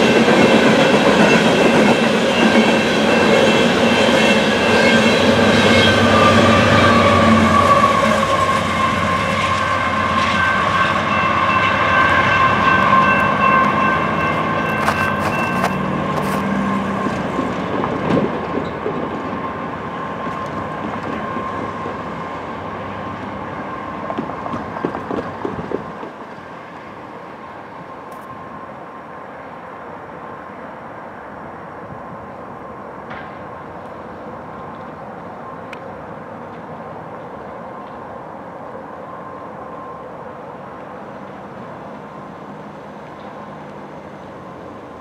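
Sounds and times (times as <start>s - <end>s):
train cars clickety-clack on rails: 0.0s - 27.0s
high wheel squeal: 1.3s - 16.6s.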